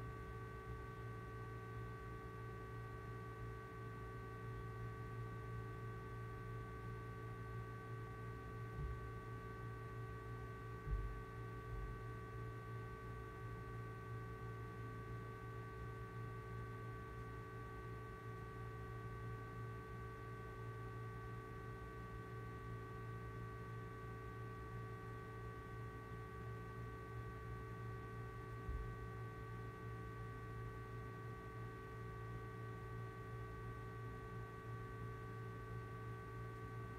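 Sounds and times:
low electrical hum: 0.0 - 36.9
soft low thump: 8.8 - 9.1, 10.8 - 12.0, 28.7 - 28.9.

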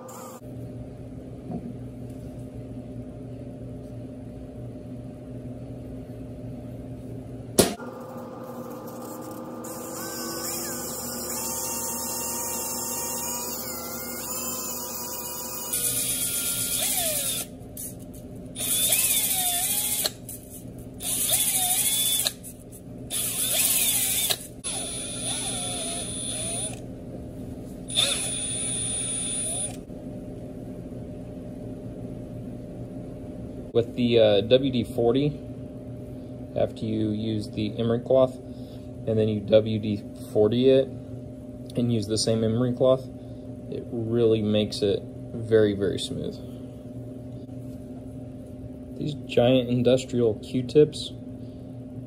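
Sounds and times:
handheld drill motor hum: 8.4 - 26.8, 27.9 - 29.9.

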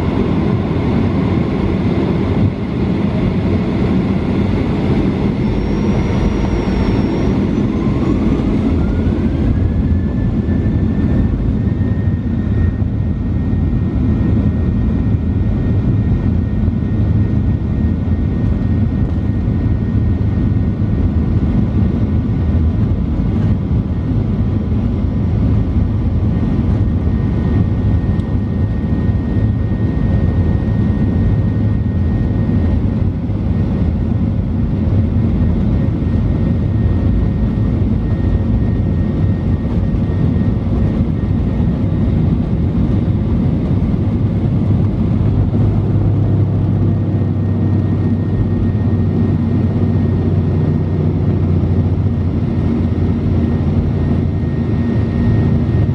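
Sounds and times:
faint high engine whine: 0.0 - 55.9
jet engines rumbling: 0.0 - 55.9.

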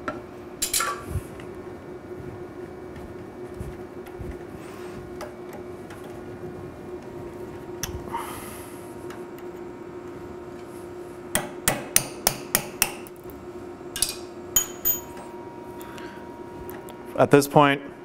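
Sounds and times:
hammer tapping metal punch: 11.3 - 13.1.

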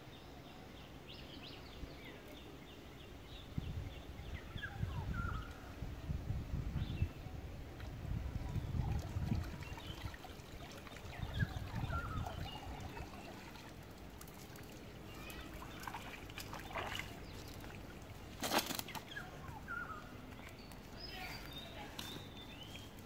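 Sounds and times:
small birds chirping: 0.0 - 6.1, 8.3 - 23.0
water trickling and dripping: 7.6 - 20.9
net rustling on ground: 18.2 - 19.2.

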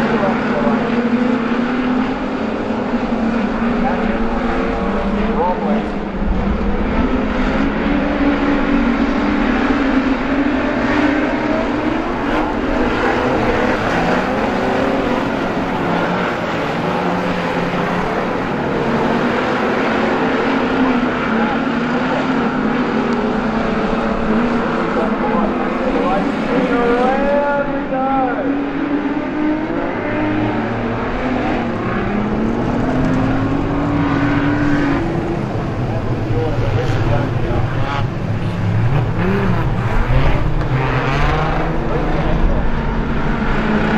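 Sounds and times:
car accelerating: 0.0 - 43.9
race car engines: 0.0 - 43.9.

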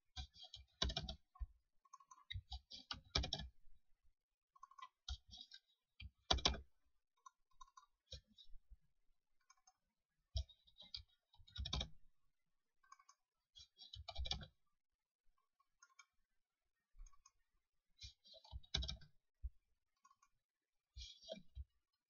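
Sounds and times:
keyboard typing: 0.2 - 1.2, 2.9 - 3.5, 6.3 - 6.6, 11.5 - 12.0, 18.5 - 19.1.

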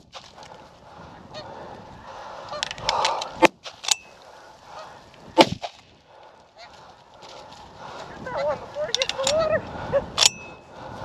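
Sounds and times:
geese honking: 4.2 - 5.1, 6.5 - 7.0, 7.9 - 9.9
sharp cracks: 5.4 - 6.4.

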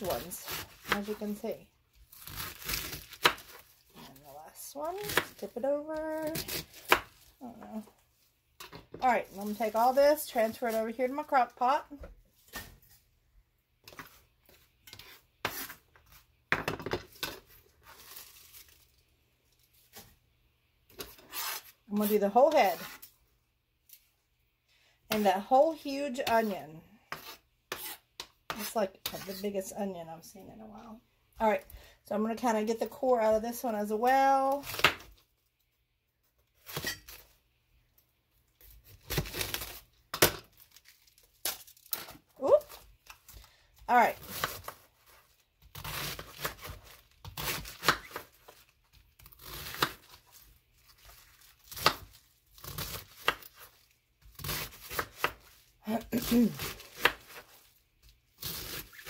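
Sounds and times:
rustling cabbage leaves: 2.0 - 7.8, 17.5 - 19.0, 44.2 - 59.0
knife scraping cutting board: 13.9 - 16.2, 21.0 - 23.1, 26.3 - 29.4.

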